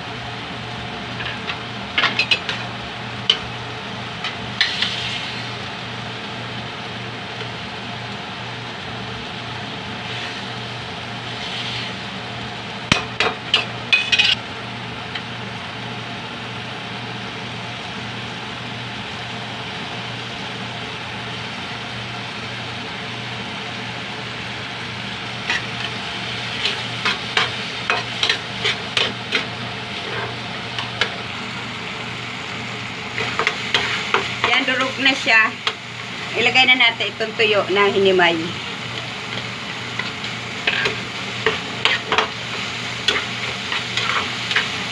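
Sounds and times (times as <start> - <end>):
vegetables sizzling in pan: 0.0 - 44.9
metal spatula scraping pan: 13.6 - 14.4, 25.4 - 31.1, 33.2 - 34.3, 39.0 - 44.8.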